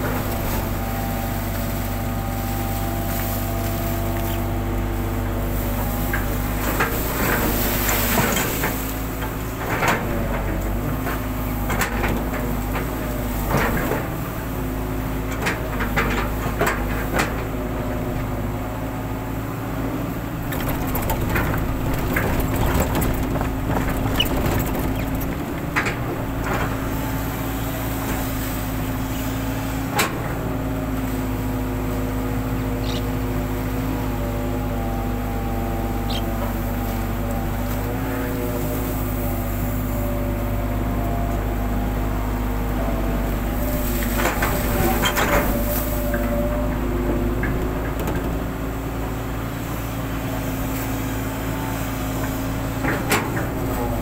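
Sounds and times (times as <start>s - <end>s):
excavator diesel engine running: 0.0s - 54.0s
excavator bucket knocks and clanks: 20.2s - 27.5s, 44.0s - 49.5s.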